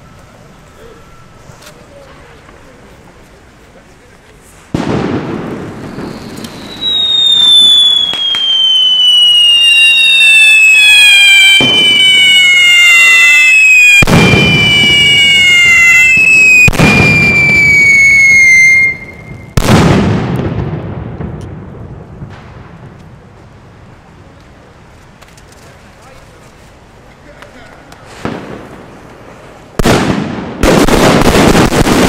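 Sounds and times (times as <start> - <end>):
firework spraying sparks: 4.3 - 19.3
firework bangs: 4.6 - 23.9, 27.9 - 32.0
firework whistle falling in pitch: 5.7 - 19.6.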